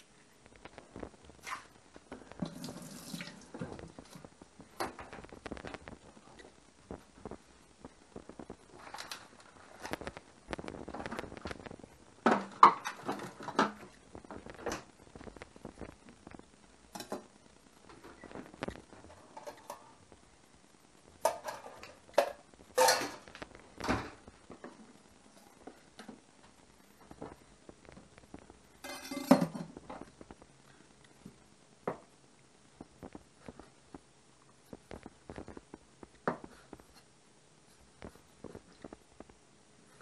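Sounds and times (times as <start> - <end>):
dishes and utensils clinking: 21.2 - 23.4, 28.8 - 29.8.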